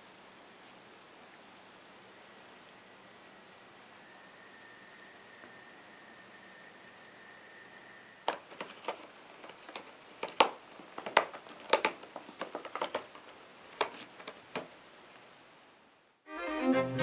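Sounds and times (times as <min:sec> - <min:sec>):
sharp clicks: 0:08.3 - 0:14.7
string music: 0:16.3 - 0:17.0.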